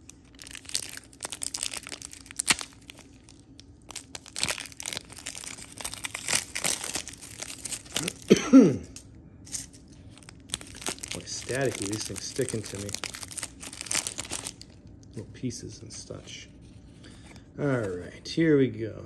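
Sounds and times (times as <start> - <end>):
foil wrappers crinkling and tearing: 0.0 - 8.3, 9.6 - 14.8.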